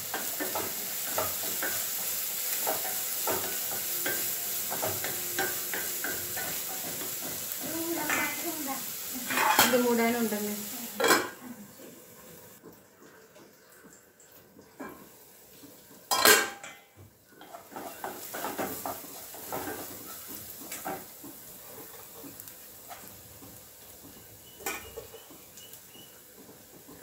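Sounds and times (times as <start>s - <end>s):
wooden spatula scraping frying pan: 0.0s - 10.2s, 17.4s - 25.4s
light sizzle: 0.0s - 27.0s
pan lid clattering: 16.1s - 16.8s.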